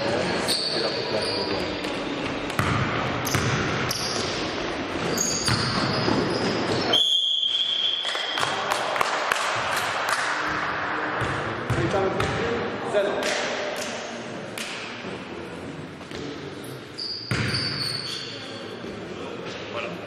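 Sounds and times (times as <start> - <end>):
sneakers squeaking: 0.0 - 8.6, 16.1 - 19.1
basketball bouncing on court: 1.8 - 4.4, 5.1 - 6.9, 11.2 - 12.5, 17.3 - 17.9.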